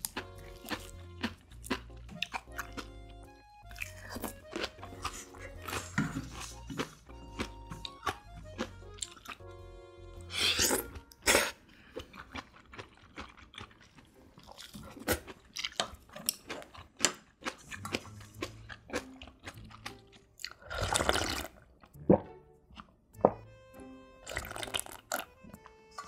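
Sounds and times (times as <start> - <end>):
crunchy chewing: 0.0 - 9.5, 10.2 - 21.9
slurping broth: 10.2 - 11.6, 19.8 - 22.3, 24.3 - 25.2
slurping noodles: 10.2 - 11.6, 20.4 - 21.6, 24.3 - 25.2.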